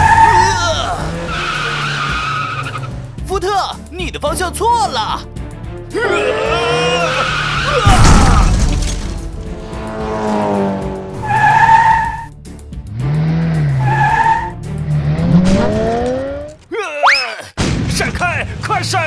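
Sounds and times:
tyre squeals: 0:00.0 - 0:02.9, 0:06.4 - 0:08.0, 0:11.2 - 0:12.3, 0:13.8 - 0:14.6
background music: 0:00.0 - 0:16.9
cartoon car crash: 0:07.2 - 0:09.5.

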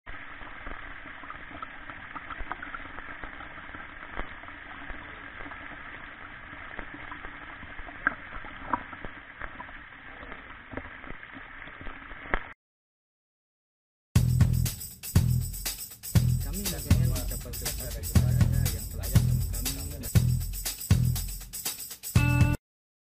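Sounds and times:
stream trickling over stones: 0:00.1 - 0:12.5
small water splashes: 0:00.4 - 0:12.5.

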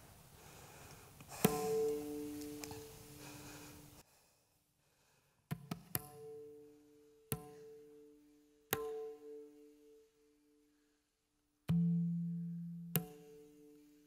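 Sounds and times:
struck percussion ringing: 0:01.4 - 0:03.9.

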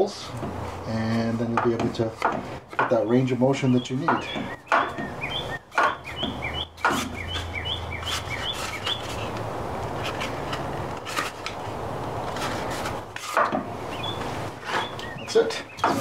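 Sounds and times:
bird chirping: 0:02.8 - 0:09.4, 0:13.9 - 0:16.0
plastic rubbing on wood: 0:05.8 - 0:16.0.

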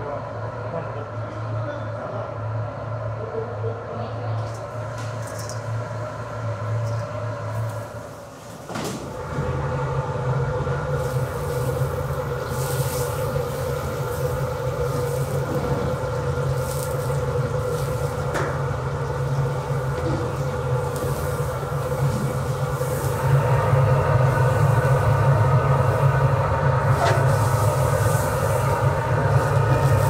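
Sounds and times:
burner and machinery rumble: 0:00.0 - 0:30.0
hot oil sizzling: 0:09.2 - 0:30.0.

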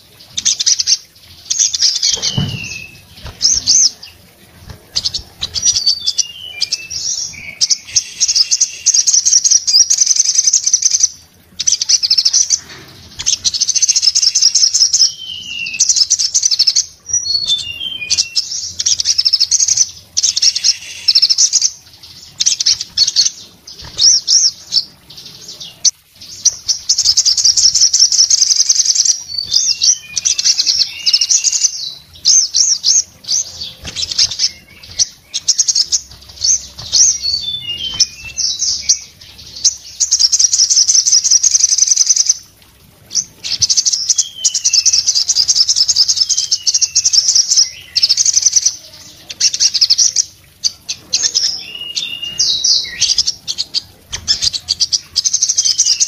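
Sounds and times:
bird singing fast high trills: 0:00.4 - 0:04.2, 0:05.0 - 0:42.4.

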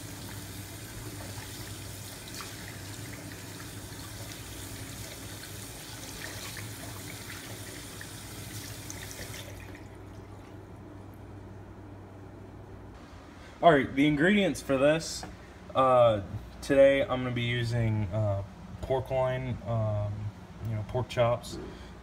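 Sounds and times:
faucet running: 0:00.0 - 0:10.6.

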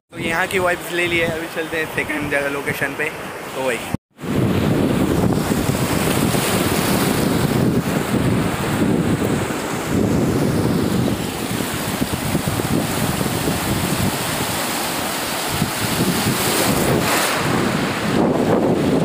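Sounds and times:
waves splashing over rocks: 0:03.3 - 0:19.0
wind buffeting microphone: 0:04.1 - 0:19.0.

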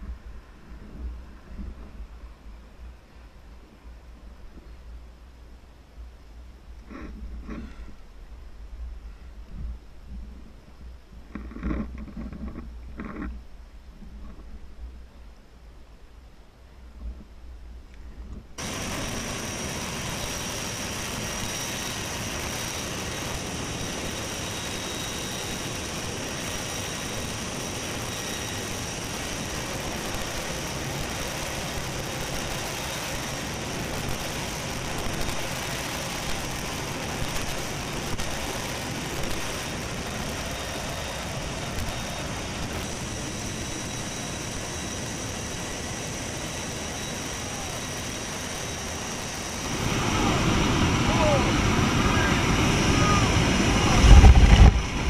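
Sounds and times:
aircraft engines and rushing air: 0:18.6 - 0:55.0.

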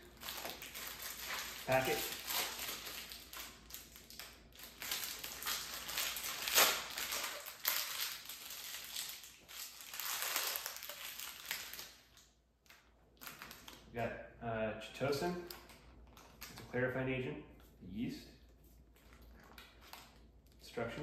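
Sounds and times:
plastic packaging crinkling: 0:00.0 - 0:13.9, 0:18.8 - 0:20.6.

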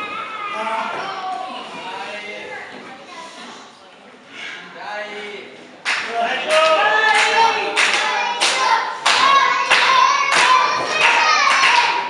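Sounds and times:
audience clapping in rhythm: 0:05.8 - 0:12.0
voices chanting: 0:06.1 - 0:12.0.

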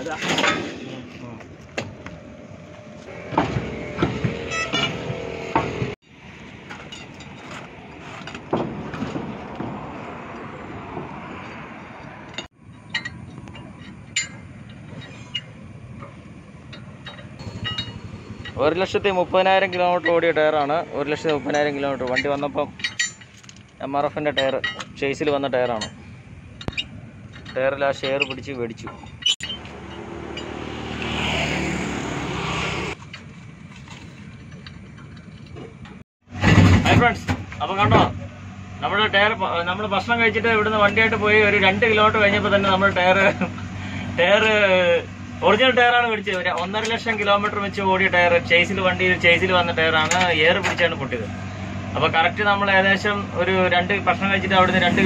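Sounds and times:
outdoor background noise: 0:00.0 - 0:55.0
vehicle engine and tyre noise: 0:00.0 - 0:55.0
metal tools clinking: 0:06.7 - 0:08.4, 0:12.3 - 0:18.6, 0:21.0 - 0:30.7.

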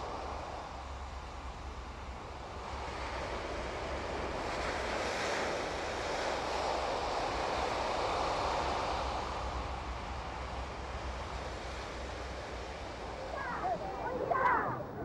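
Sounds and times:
surf washing onto beach: 0:12.4 - 0:15.0.

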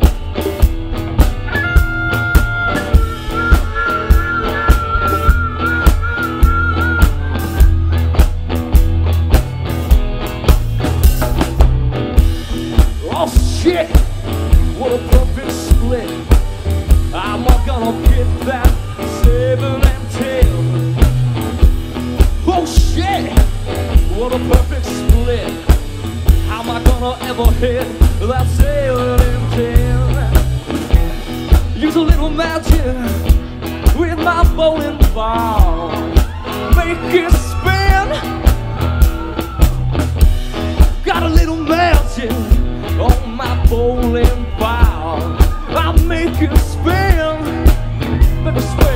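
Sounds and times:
drum kit beat: 0:00.0 - 0:48.9
electric guitar: 0:00.0 - 0:48.9
man singing: 0:01.4 - 0:08.1, 0:12.7 - 0:21.3, 0:22.2 - 0:39.5, 0:40.8 - 0:48.9.

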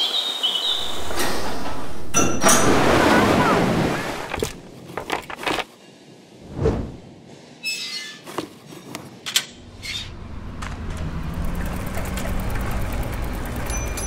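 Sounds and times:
short squeak: 0:07.6 - 0:08.3
bicycle wheels on training rollers: 0:10.4 - 0:14.0.

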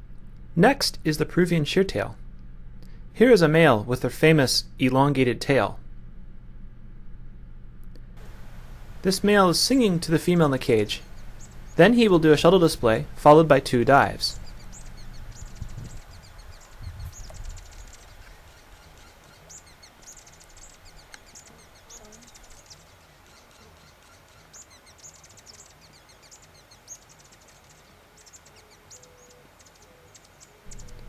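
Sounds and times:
hummingbird high thin notes: 0:07.9 - 0:23.8, 0:30.6 - 0:31.0.

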